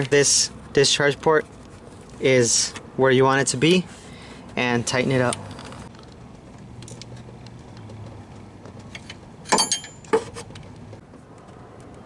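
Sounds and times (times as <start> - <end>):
wrenches clinking on metal: 8.9 - 10.4.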